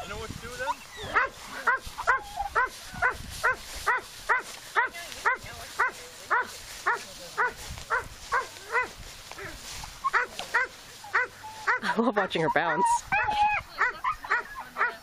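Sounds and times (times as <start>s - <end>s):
dog barking in high yips: 1.0s - 8.9s.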